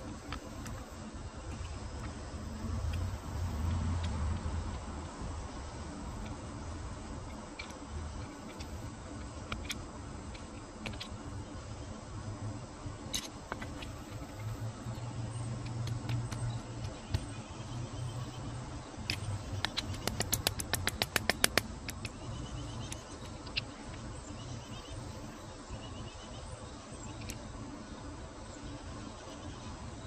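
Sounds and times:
low steady rumble: 0.0 - 30.0
light sharp clicks: 19.0 - 22.2.

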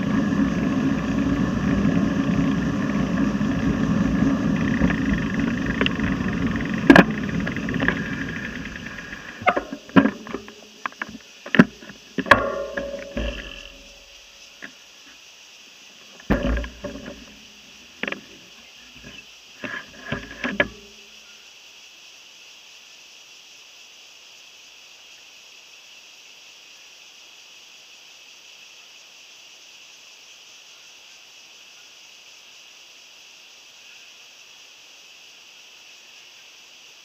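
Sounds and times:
bicycle knocks and rattles: 0.0 - 14.8, 16.1 - 21.1
steady high hiss: 0.0 - 37.0.

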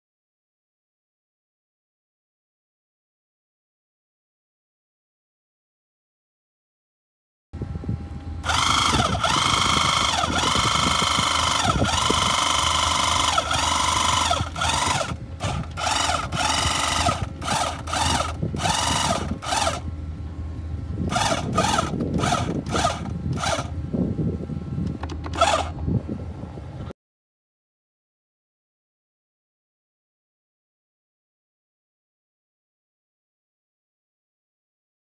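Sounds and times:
steady low hum: 7.6 - 26.9
hydraulic pump whining: 8.2 - 24.0, 24.8 - 25.9.

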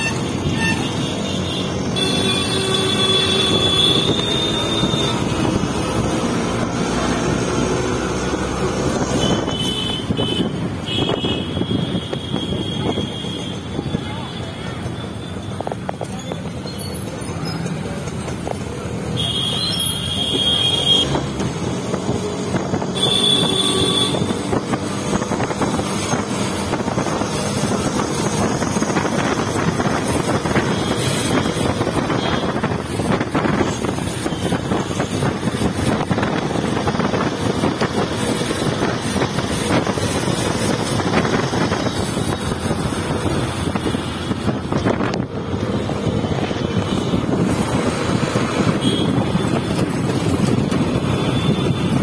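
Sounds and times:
engine and road noise: 0.0 - 52.0
wind buffeting microphone: 21.1 - 52.0.

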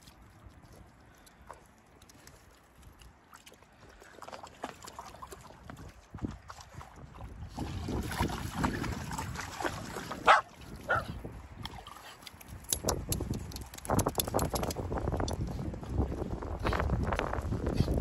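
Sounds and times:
water splashing and lapping: 0.0 - 18.0
dog barking: 10.2 - 11.2.

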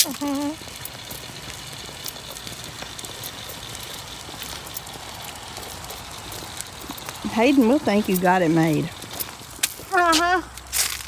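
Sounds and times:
wheelchair rolling on concrete: 0.0 - 11.0.

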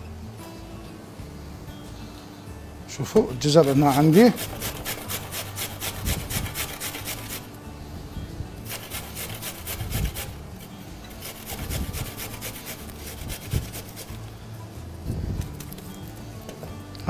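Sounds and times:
carrot grated on box grater: 3.6 - 7.5, 8.7 - 14.2.

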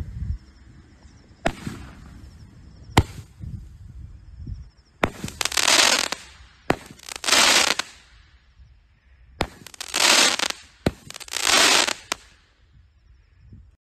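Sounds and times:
firework launch crack: 1.4 - 3.4, 5.0 - 8.2, 9.4 - 12.4
firework burst crackling: 5.0 - 8.1, 9.4 - 12.4.

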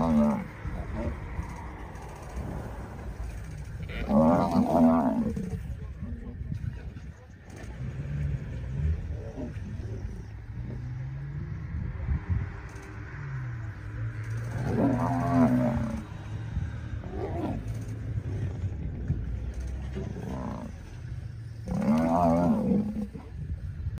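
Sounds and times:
lions roaring: 0.0 - 3.2, 3.8 - 5.6, 14.4 - 16.1, 17.0 - 18.0, 19.8 - 20.8, 21.6 - 23.3
steady low rumble: 0.0 - 24.0.

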